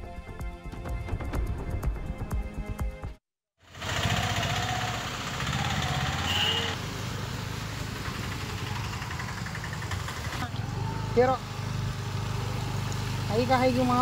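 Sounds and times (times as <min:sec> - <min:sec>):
small vehicle engines running: 0:03.6 - 0:14.0.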